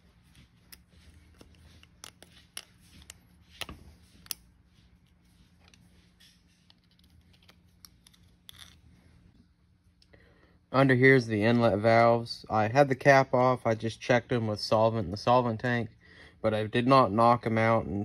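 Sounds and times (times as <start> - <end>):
steady low hum: 0.0 - 18.0
small metal parts clicking: 6.7 - 8.8.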